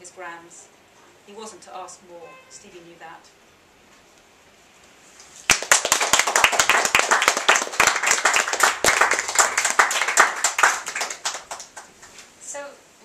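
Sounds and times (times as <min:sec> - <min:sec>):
audience applauding: 0:05.5 - 0:12.0.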